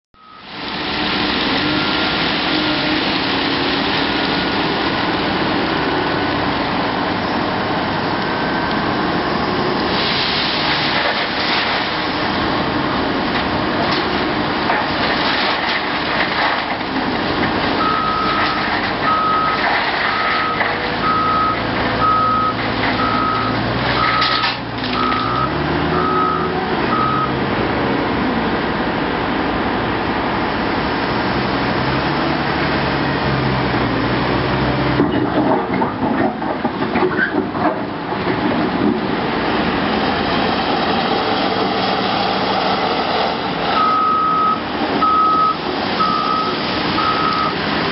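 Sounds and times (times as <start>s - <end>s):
gravel clattering into truck: 9.9s - 12.3s, 13.4s - 21.7s, 22.5s - 25.6s
reversing alarm beeping: 19.1s - 24.4s, 25.0s - 27.4s, 43.8s - 47.6s
heavy machinery running: 32.0s - 47.9s.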